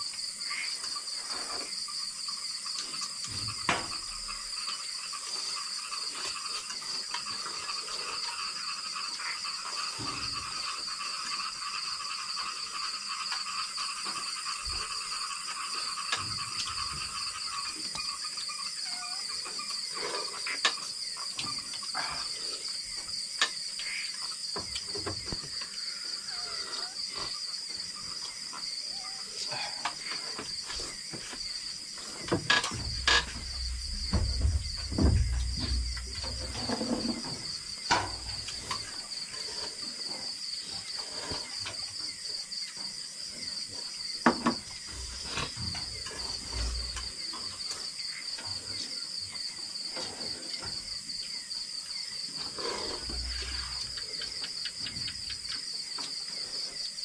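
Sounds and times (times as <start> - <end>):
night insects chirring: 0.0 - 57.0
low rumble: 32.8 - 36.7.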